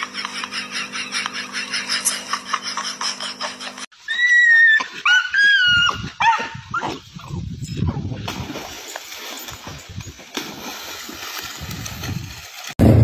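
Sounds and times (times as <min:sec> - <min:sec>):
steady hum: 0:00.0 - 0:03.9.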